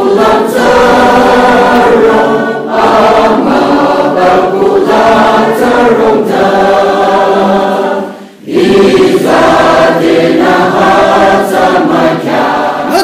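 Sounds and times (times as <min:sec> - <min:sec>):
congregation singing a hymn: 0:00.0 - 0:13.0.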